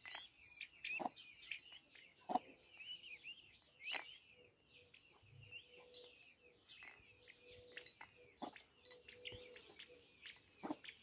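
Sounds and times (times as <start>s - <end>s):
chicks peeping: 0.6s - 3.0s, 6.9s - 11.0s.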